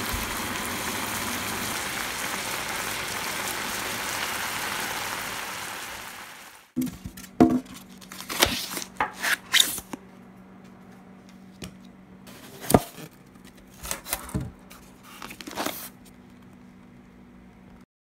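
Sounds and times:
faint steady hum: 0.0s - 17.8s
plastic wrapping rustling: 6.8s - 9.8s, 12.3s - 16.6s.

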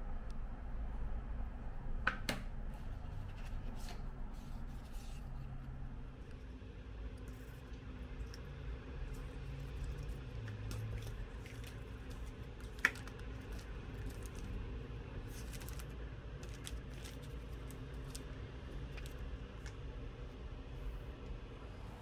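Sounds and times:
steady low hum: 0.0s - 22.0s
paper packaging rustling: 9.1s - 19.2s.

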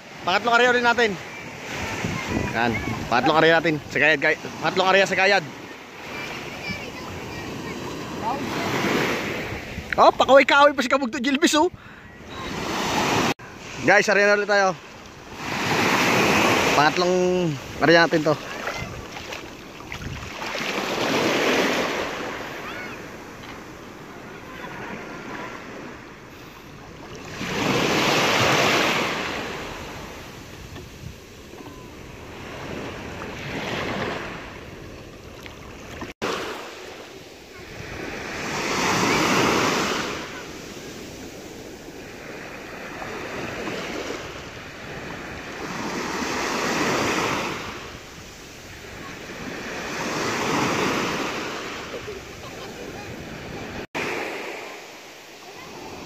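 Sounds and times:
small waves washing in shallows: 0.0s - 56.0s
wind on microphone: 1.7s - 3.3s, 18.5s - 20.5s, 29.6s - 34.0s.

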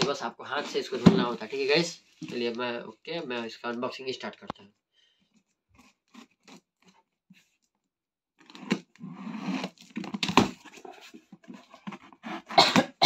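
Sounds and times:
cardboard rustling and scraping: 0.5s - 2.7s, 8.4s - 12.6s.

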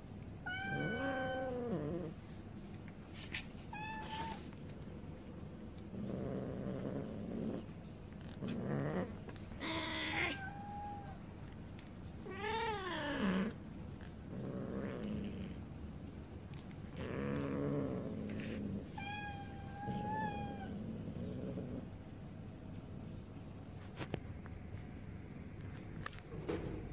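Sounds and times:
cats yowling: 0.4s - 2.0s, 9.6s - 11.3s, 12.2s - 13.6s, 19.0s - 20.8s.

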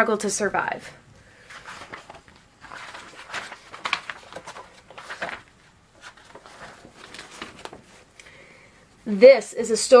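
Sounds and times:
book pages rustling: 1.4s - 8.2s.

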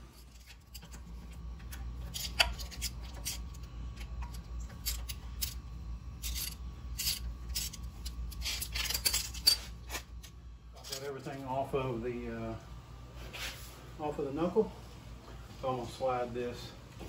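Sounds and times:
low steady hum: 0.0s - 17.0s
metal tools scraping and clicking: 0.1s - 1.0s, 1.6s - 5.6s, 6.2s - 11.2s.

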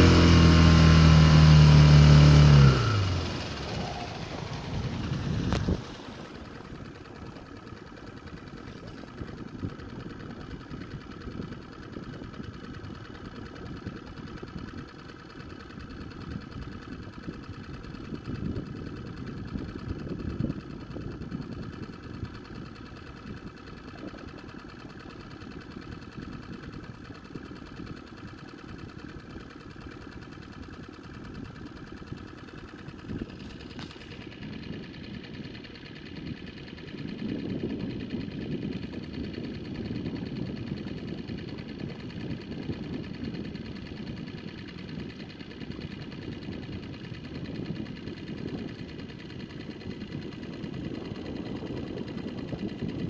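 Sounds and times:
low rumble: 0.0s - 11.4s
boat motor humming: 0.0s - 53.0s.

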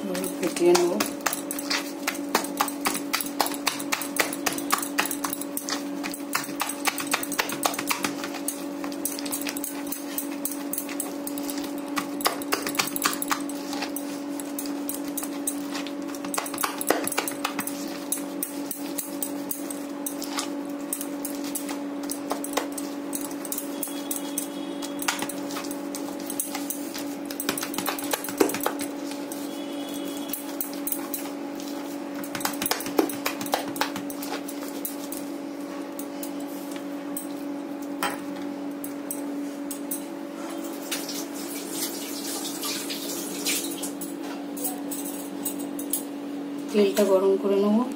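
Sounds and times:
steady low hum: 0.0s - 40.9s
hand slapping wet batter: 0.5s - 9.6s, 11.6s - 14.0s, 15.0s - 19.2s, 25.0s - 29.2s, 32.2s - 34.5s.

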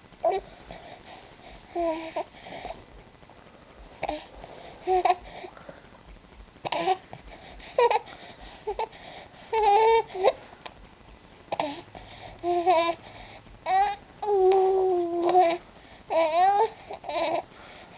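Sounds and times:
baby cooing and babbling: 1.7s - 2.3s, 4.0s - 5.3s, 7.8s - 8.1s, 9.5s - 10.4s, 11.5s - 13.0s, 13.6s - 17.4s.

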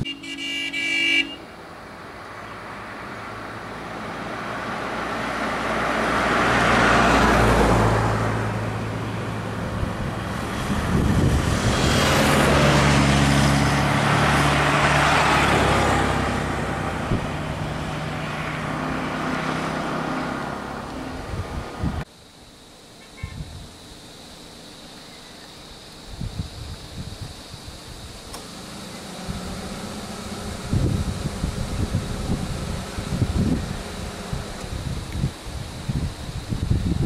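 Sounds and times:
vehicle horn toot: 0.0s - 1.5s, 23.0s - 23.5s
vehicles driving past: 0.0s - 22.1s, 28.3s - 37.0s.

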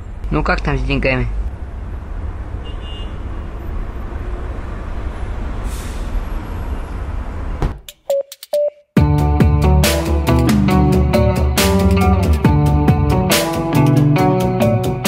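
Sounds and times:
brief hiss: 5.6s - 6.2s.

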